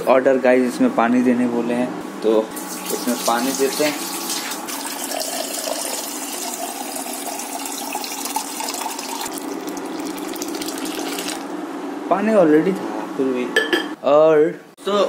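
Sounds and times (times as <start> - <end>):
water running into pot: 2.6 - 11.5.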